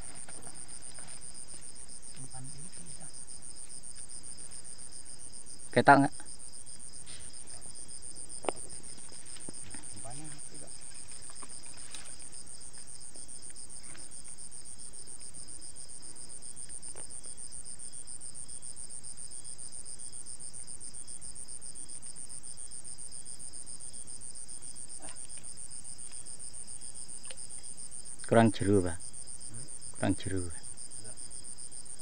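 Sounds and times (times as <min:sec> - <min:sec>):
insect chirping in even beat: 0:00.0 - 0:32.0
night insects trilling: 0:00.0 - 0:32.0
faint clicks: 0:27.2 - 0:27.7.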